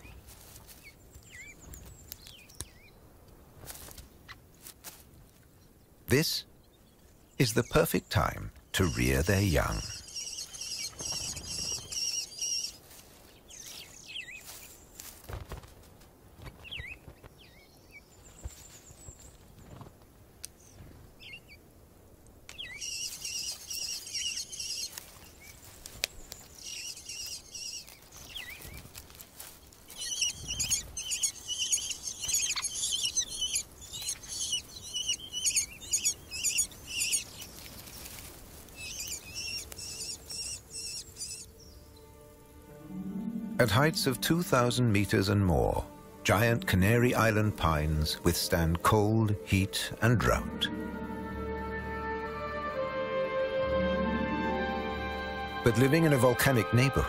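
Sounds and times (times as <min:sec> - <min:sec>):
nestling begging chirps: 0:06.8 - 0:14.8, 0:22.5 - 0:42.1.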